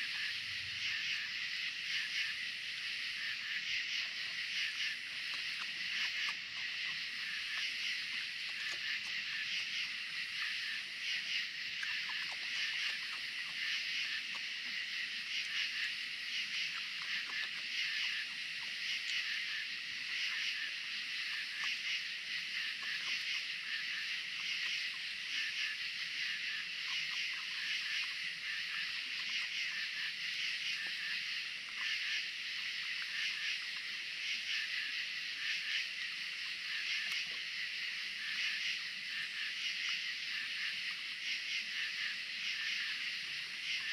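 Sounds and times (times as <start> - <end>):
insects trilling at night: 0.0 - 43.9
faint clicks: 5.2 - 9.2.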